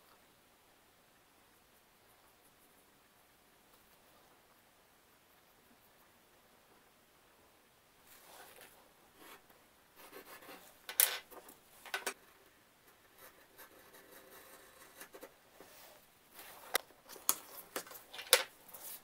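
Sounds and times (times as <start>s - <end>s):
pencil scratching on cardboard: 9.2s - 10.8s, 12.9s - 16.8s.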